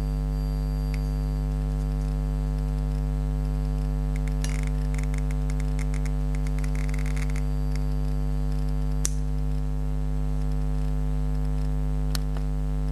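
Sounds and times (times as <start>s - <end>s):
steady electrical hum: 0.0s - 12.9s
geiger counter clicking: 4.1s - 9.3s.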